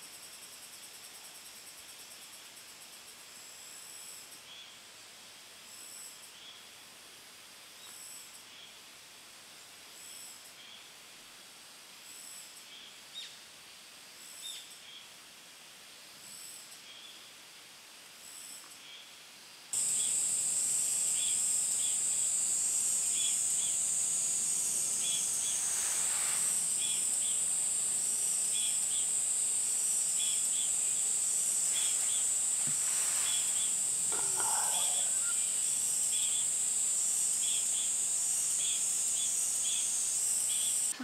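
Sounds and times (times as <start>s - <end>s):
insect high-pitched buzz: 0.0s - 4.9s, 19.7s - 41.0s
insect chirp: 0.0s - 17.4s, 18.1s - 41.0s.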